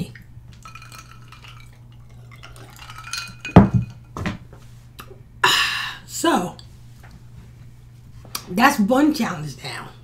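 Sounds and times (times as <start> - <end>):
glass clinking: 0.6 - 4.3
glass thumping on tabletop: 3.5 - 4.4.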